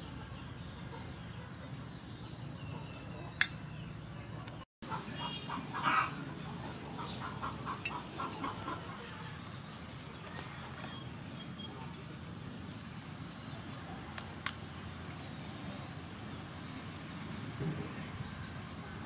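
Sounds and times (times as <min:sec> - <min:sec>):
chicken clucking: 0:04.9 - 0:09.2.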